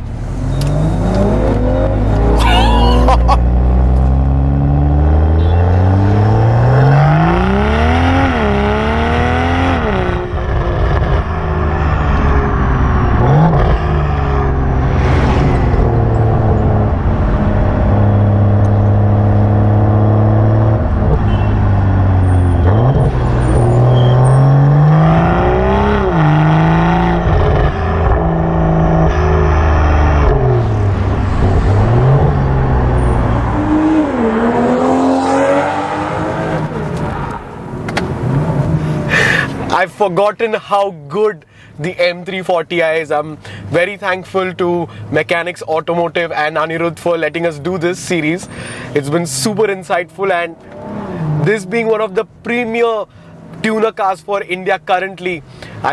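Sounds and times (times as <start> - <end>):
car engine revving through gears: 0.0 - 39.7, 50.5 - 51.9.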